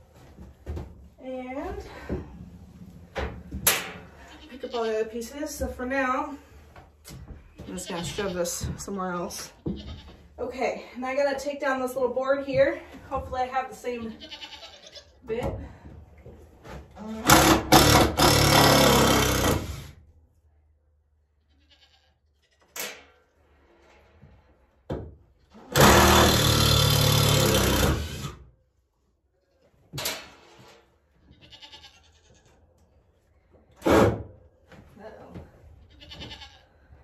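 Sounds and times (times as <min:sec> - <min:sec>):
goat bleats: 0:04.2 - 0:05.0, 0:09.6 - 0:10.1, 0:14.1 - 0:15.2, 0:21.4 - 0:22.6, 0:31.3 - 0:32.6, 0:35.9 - 0:36.7.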